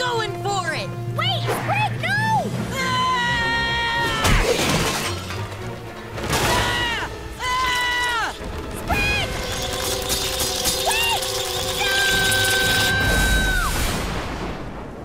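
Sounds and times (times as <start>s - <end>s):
background music score: 0.0s - 14.5s
crash of clattering junk: 4.2s - 7.0s.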